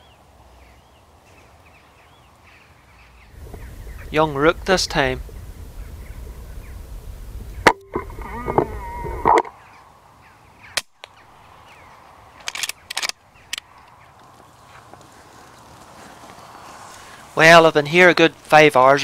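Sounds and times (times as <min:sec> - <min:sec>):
harsh bird calls: 0:00.0 - 0:19.0
sharp clicks: 0:12.4 - 0:14.0.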